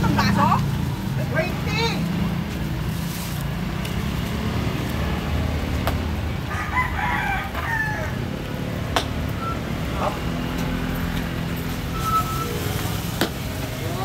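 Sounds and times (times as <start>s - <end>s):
street traffic rumble: 0.0s - 14.0s
rooster crowing: 6.5s - 8.4s.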